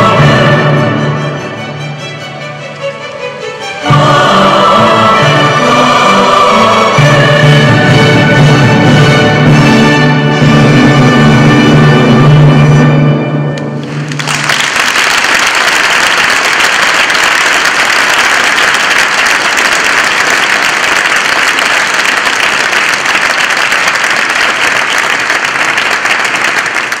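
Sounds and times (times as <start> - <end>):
choir and orchestra holding chord: 0.0 - 14.1
audience applause: 13.8 - 27.0.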